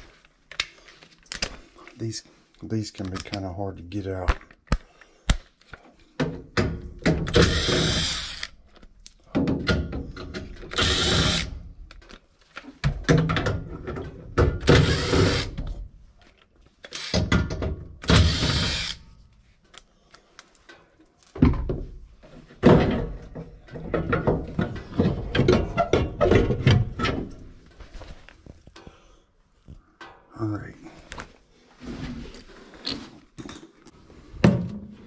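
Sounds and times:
cordless driver whirring: 0:07.3 - 0:08.6, 0:10.7 - 0:11.5, 0:14.7 - 0:15.6, 0:16.9 - 0:17.2, 0:18.1 - 0:19.0
metal clunks and knocks: 0:09.3 - 0:10.7, 0:12.8 - 0:14.7, 0:21.4 - 0:27.6.

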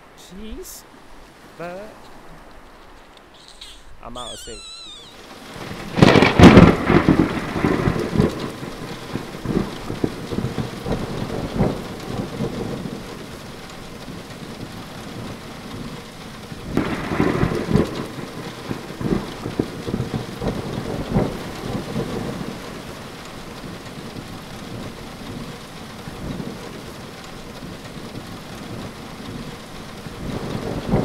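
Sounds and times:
rain hiss: 0:00.0 - 0:31.0
thunder rumble: 0:04.5 - 0:31.0
thunder cracks: 0:05.1 - 0:26.9, 0:30.0 - 0:31.0.

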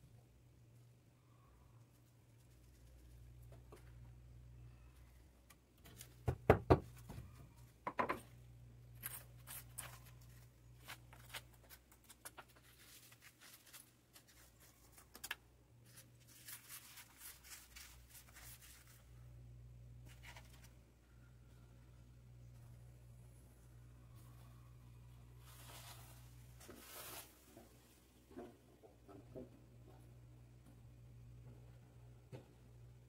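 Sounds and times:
steady low hum: 0:15.4 - 0:26.7.

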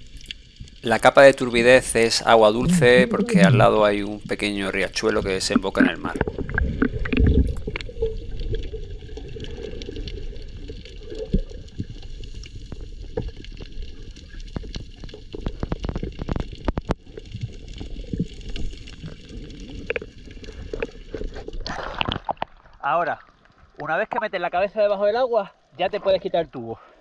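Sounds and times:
muffled underwater rush of water: 0:00.0 - 0:24.5
sharp underwater clicks: 0:05.2 - 0:08.6.

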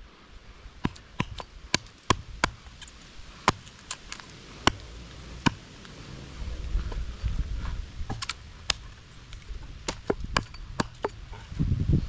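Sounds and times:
hatchet chopping wood: 0:00.8 - 0:04.8, 0:08.1 - 0:11.3.

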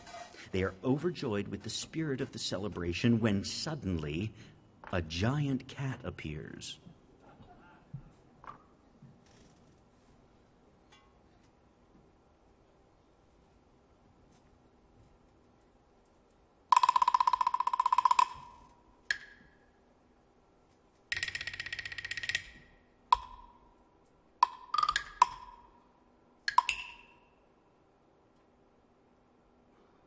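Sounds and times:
wooden blocks and gongs struck: 0:16.7 - 0:19.6, 0:21.1 - 0:23.8, 0:24.4 - 0:25.9, 0:26.5 - 0:27.4.

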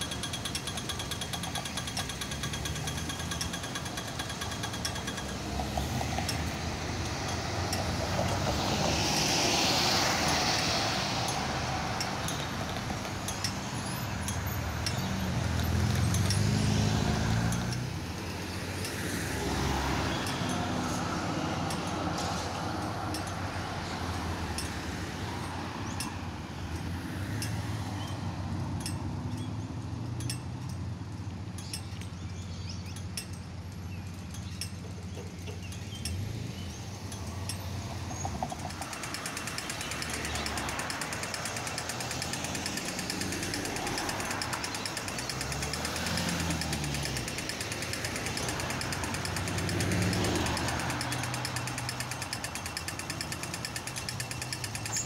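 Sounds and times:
fast even rattle: 0:00.0 - 0:08.6, 0:33.0 - 0:55.0
sharp clicks: 0:00.0 - 0:26.2, 0:32.8 - 0:55.0
tram moving off: 0:00.0 - 0:29.0, 0:33.7 - 0:55.0
cars driving past: 0:00.0 - 0:55.0.

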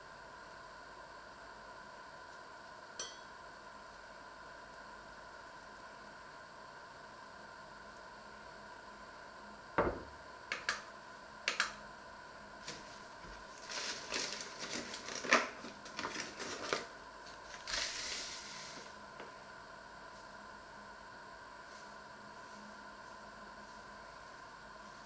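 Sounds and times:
paper bag crackling: 0:12.6 - 0:18.9.

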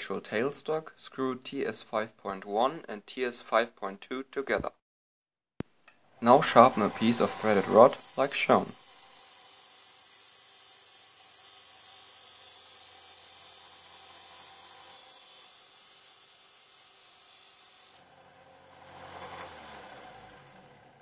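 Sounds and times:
metal grinding on sanding disc: 0:06.3 - 0:10.2
coarse lower grinding noise: 0:06.3 - 0:21.0.

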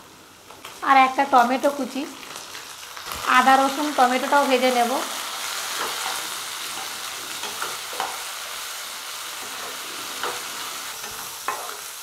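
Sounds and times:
vegetables sizzling in hot oil: 0:00.0 - 0:12.0
spatula scraping a pan: 0:05.6 - 0:08.5.

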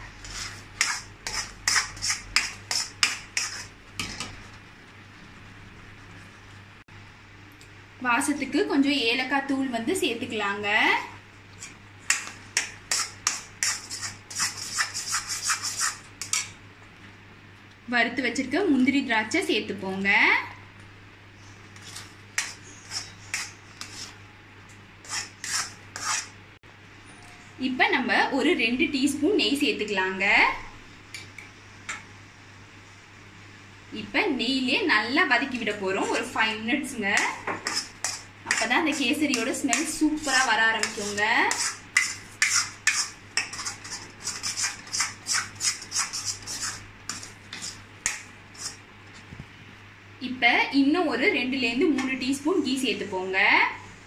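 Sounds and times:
metal spatula scraping a pot: 0:00.0 - 0:04.3, 0:11.6 - 0:16.5, 0:21.8 - 0:24.2, 0:25.0 - 0:26.4, 0:37.2 - 0:48.8.

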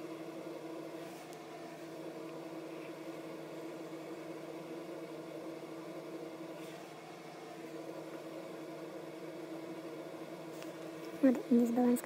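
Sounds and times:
power inverter humming: 0:00.0 - 0:12.0.

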